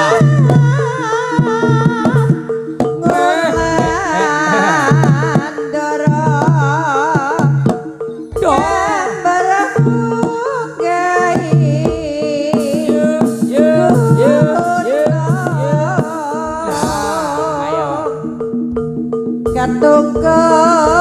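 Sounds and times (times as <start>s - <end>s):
hand drum strokes: 0.0s - 10.6s, 11.3s - 21.0s
woman singing: 0.0s - 18.4s, 19.5s - 21.0s
steady held tone: 1.4s - 6.8s, 12.6s - 21.0s.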